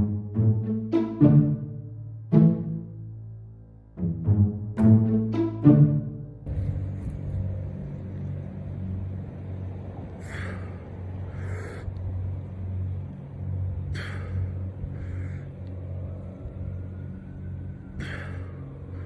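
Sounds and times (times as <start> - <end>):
low rumble: 0.0 - 19.0
man breathing heavily: 10.0 - 19.0.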